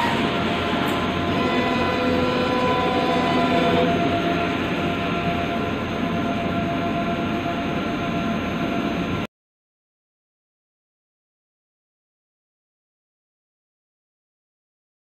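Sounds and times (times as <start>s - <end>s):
printer machine hum: 0.0s - 8.9s.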